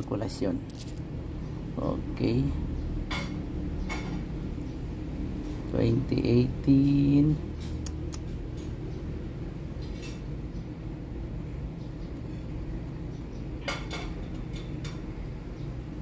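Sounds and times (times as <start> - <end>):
low background hum: 0.0 - 16.0
coins clinking: 0.6 - 1.0.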